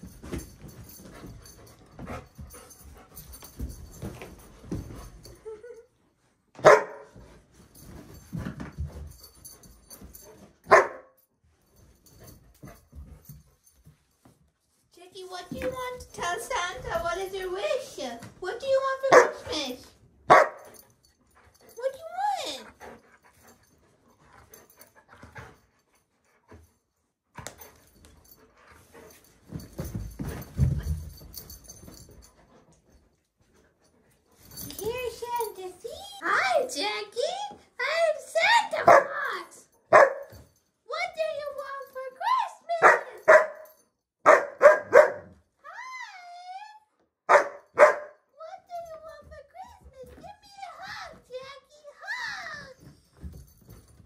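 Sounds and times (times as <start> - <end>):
rustling and shuffling: 0.0 - 43.8, 47.3 - 54.0
dog barking: 6.6 - 7.1, 10.7 - 11.2, 19.1 - 19.4, 20.3 - 20.7, 39.9 - 40.3, 42.8 - 43.6, 44.2 - 45.3, 47.3 - 48.2.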